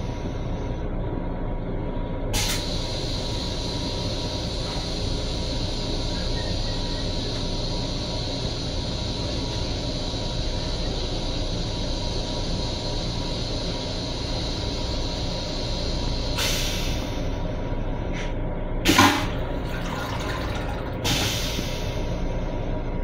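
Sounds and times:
train rumble: 0.0 - 23.0
hiss of rinse water: 18.9 - 22.1
toilet flush whoosh: 18.9 - 22.1.

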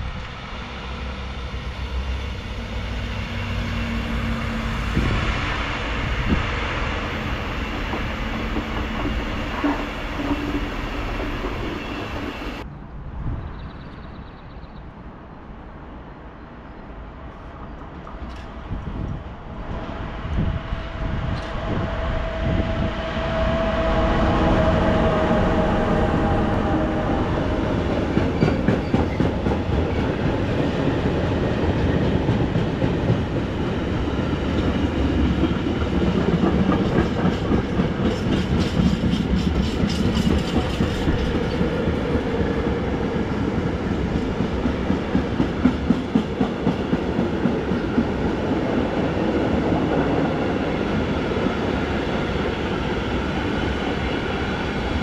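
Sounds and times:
train whine: 0.0 - 12.7, 16.9 - 55.0
train wheels clattering: 7.3 - 12.6, 27.8 - 33.7, 34.4 - 48.1.

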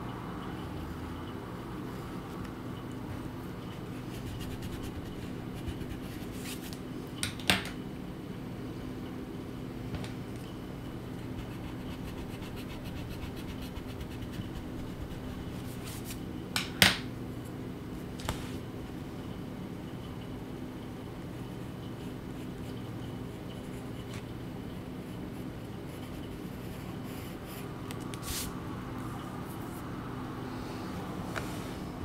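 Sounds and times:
steady low hum: 0.0 - 7.2, 7.8 - 32.0
pencil scratching on paper: 3.8 - 6.6, 11.4 - 16.1.

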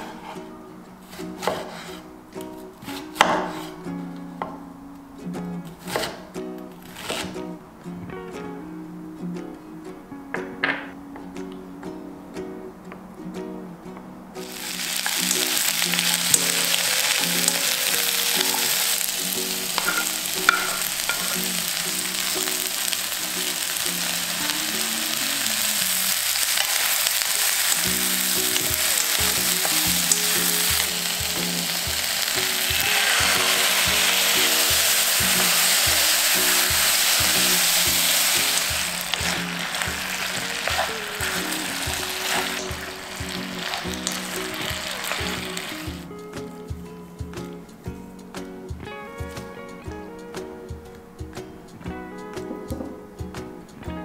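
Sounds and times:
food sizzling in a pan: 14.4 - 46.1.

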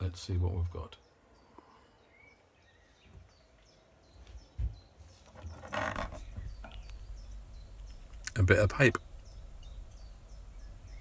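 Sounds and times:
hose rustling: 5.0 - 6.5.

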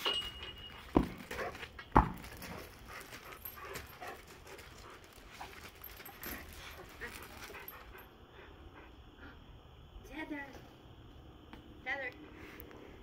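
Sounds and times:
dog striking a tetherball: 0.0 - 2.6
dog paws on gravel: 0.0 - 8.0.

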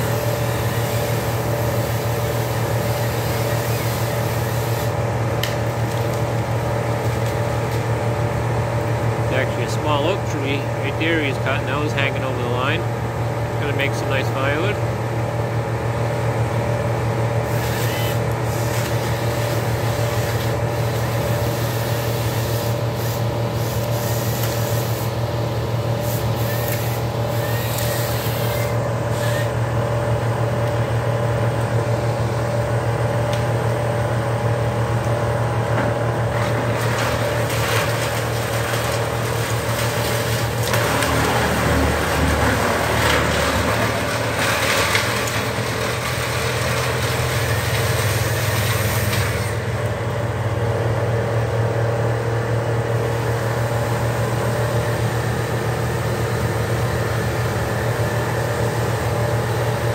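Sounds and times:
heavy engine idling: 0.0 - 59.9
rough noisy sound: 35.8 - 49.9.

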